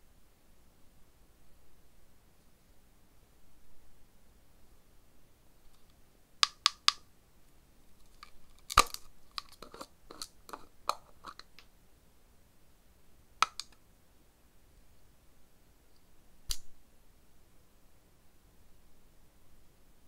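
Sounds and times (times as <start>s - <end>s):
nails clicking on plastic jar: 6.4s - 7.0s, 8.1s - 11.6s, 13.4s - 13.8s
plastic screw lid twisting open: 8.2s - 11.5s.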